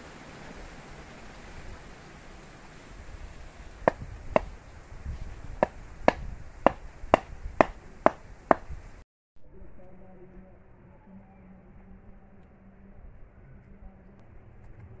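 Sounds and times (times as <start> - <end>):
brick knocking on bamboo stake: 3.9 - 4.5, 5.6 - 8.8.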